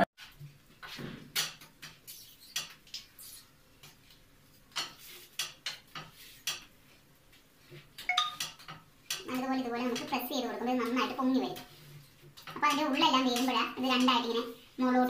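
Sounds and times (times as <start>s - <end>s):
wooden spatula scraping and tapping pan: 3.8s - 14.6s.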